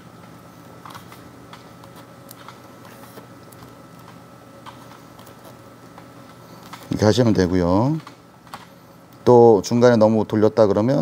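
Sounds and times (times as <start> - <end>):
grip tape ticks and rustles: 0.3 - 7.0.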